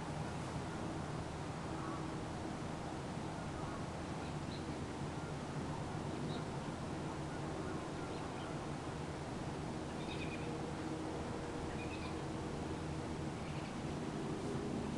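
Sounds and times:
steady background hiss: 0.0 - 14.9
faint bird chirps: 7.6 - 8.6, 9.9 - 10.5, 11.7 - 12.2, 13.4 - 13.8.

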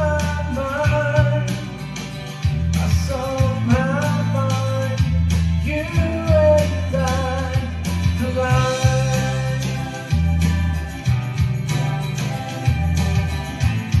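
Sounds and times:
man singing slow song: 0.0 - 1.9, 2.8 - 10.4
strummed acoustic guitar: 0.0 - 14.0.

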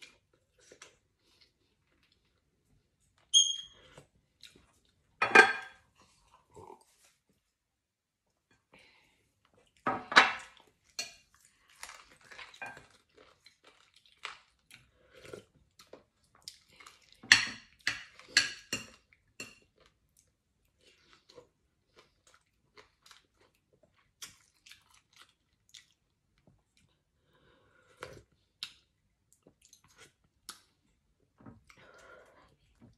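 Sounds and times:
chewing: 10.5 - 17.2, 19.7 - 27.0.

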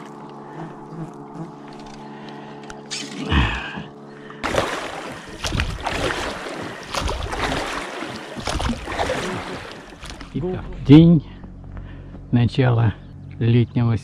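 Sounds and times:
steady hum: 0.0 - 14.0
water rushing along hull: 2.5 - 10.7
oars splashing in water: 4.2 - 10.4.

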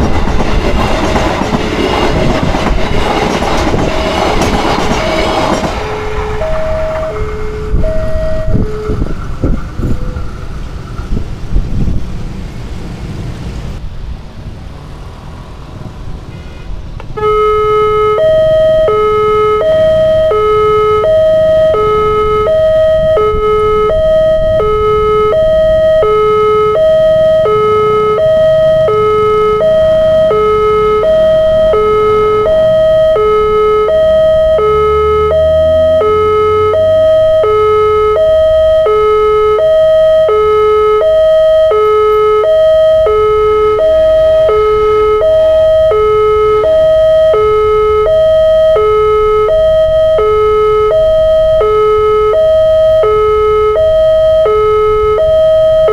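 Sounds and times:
road traffic rumble: 0.0 - 55.9
level crossing two-tone chime: 6.0 - 8.8
engine revving: 17.2 - 38.8.

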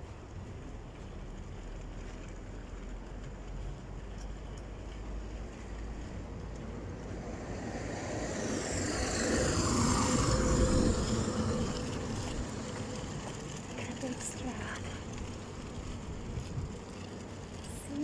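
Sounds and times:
garbage truck driving past: 7.0 - 15.7.

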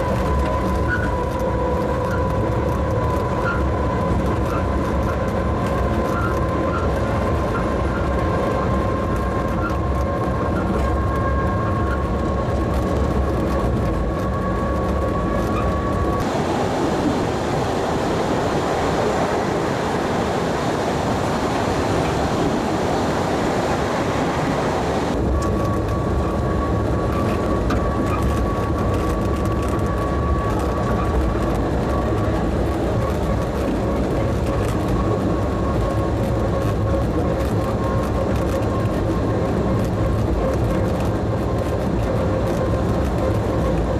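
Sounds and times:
train wheels rumbling on rail: 0.0 - 43.9.

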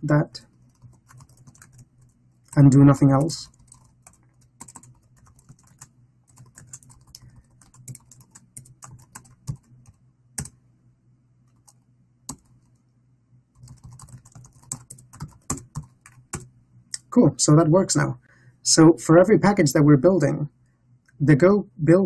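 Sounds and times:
typing on computer keyboard: 0.5 - 10.6, 11.5 - 12.7, 13.6 - 16.5.

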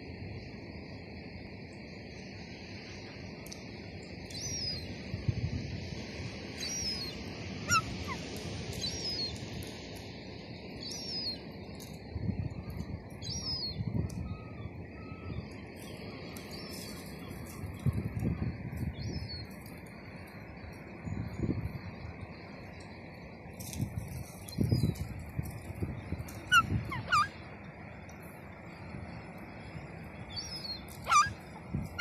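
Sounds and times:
wind rumbling on microphone: 0.0 - 32.0
gulls calling: 6.6 - 9.3, 26.2 - 27.5, 30.3 - 32.0.

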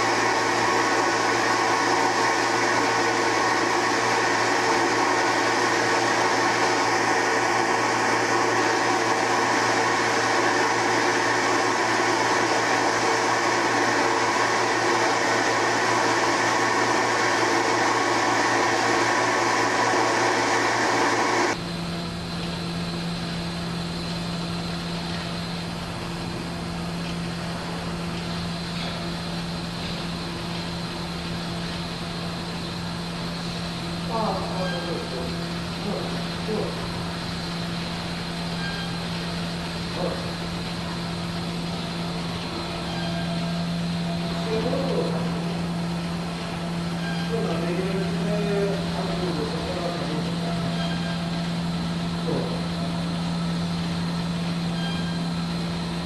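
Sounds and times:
machine motor whirring: 0.0 - 21.6.

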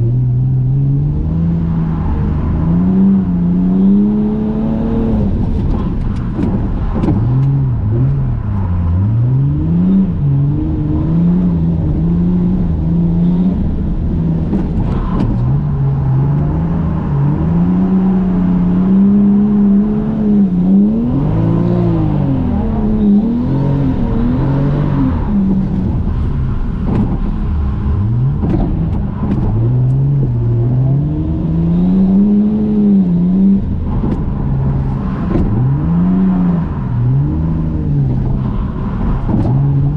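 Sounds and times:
car engine revving: 0.0 - 39.9.

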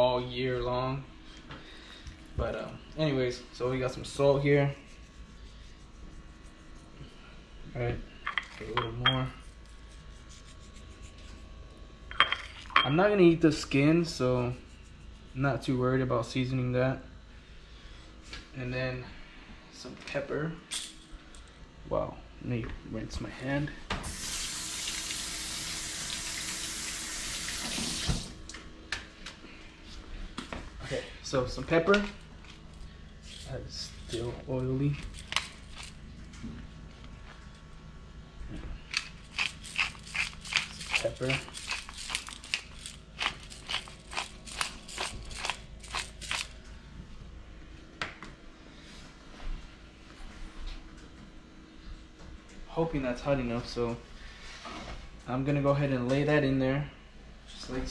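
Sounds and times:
faucet water running: 24.1 - 28.4
pepper grinder crunching: 34.9 - 36.0, 38.9 - 46.6.

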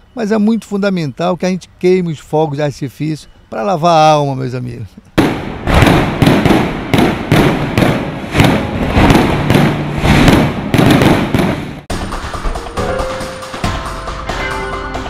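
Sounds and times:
fireworks bangs and crackles: 5.2 - 12.0
electronic music: 11.9 - 15.0.

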